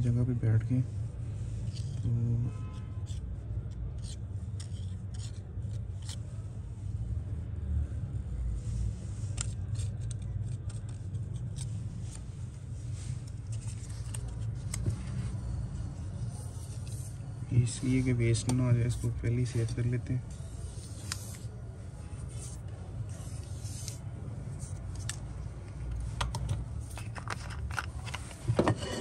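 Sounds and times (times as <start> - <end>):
steady low hum: 0.0 - 29.0
light clicks and scrapes of metal: 2.7 - 6.4, 22.3 - 29.0.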